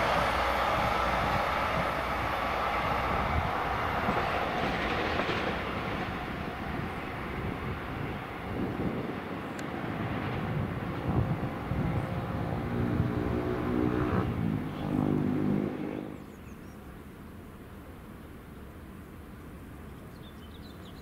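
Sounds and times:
rail vehicle engine running: 0:00.0 - 0:21.0
faint open-air background: 0:13.3 - 0:21.0.

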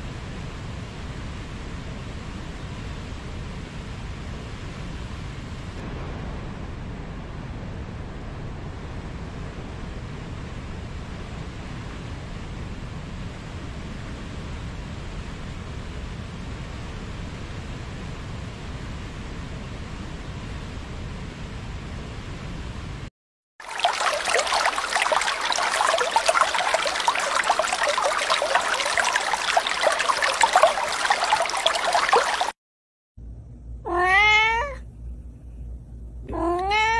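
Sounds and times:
river rushing over rocks: 0:23.6 - 0:32.5
water trickling and bubbling: 0:23.6 - 0:32.6.

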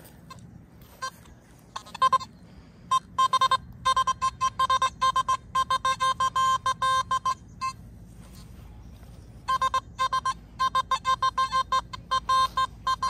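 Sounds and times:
metal detector beeping: 0:00.0 - 0:13.0.

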